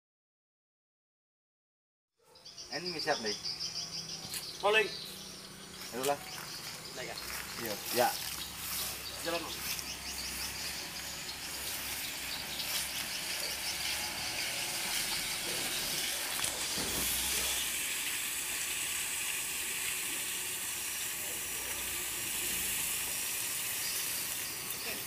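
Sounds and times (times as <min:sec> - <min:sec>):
high-pitched outdoor hiss: 0:02.4 - 0:25.0.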